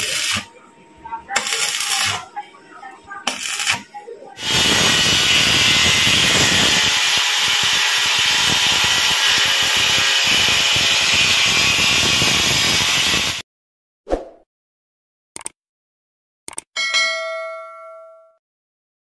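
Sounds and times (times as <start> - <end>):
angle grinder cutting tile: 0.0 - 0.5, 1.4 - 2.3, 3.3 - 13.4.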